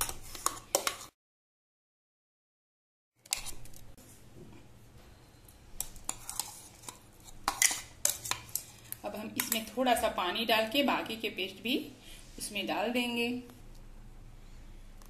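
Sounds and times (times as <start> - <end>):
spoon scraping paste from jar: 0.0 - 1.1, 5.9 - 9.6.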